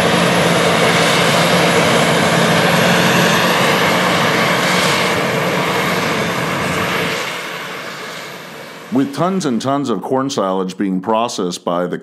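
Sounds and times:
tractor running: 0.0s - 10.0s
forage harvester drone: 0.0s - 10.5s.

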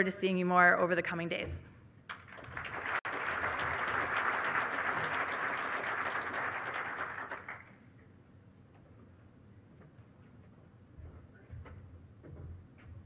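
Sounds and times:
audience applauding: 2.1s - 7.8s.

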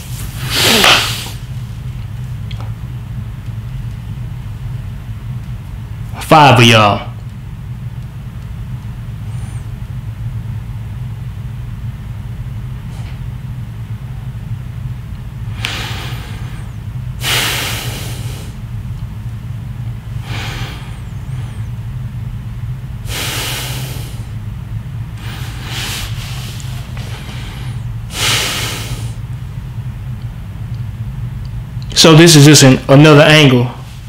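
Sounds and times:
steady low hum: 0.0s - 34.0s
man breathing heavily: 15.5s - 18.6s, 20.2s - 21.8s, 23.0s - 24.4s, 25.2s - 29.3s.

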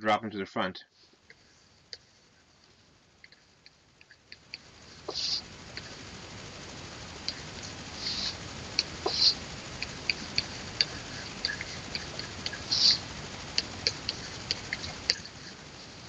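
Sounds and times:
faint steady hiss: 0.0s - 16.0s
stylus scratching strokes: 0.9s - 16.0s.

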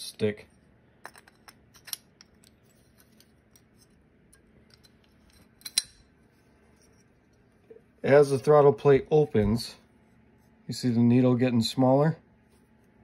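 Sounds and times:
metal parts clicking and tapping: 1.0s - 6.1s.

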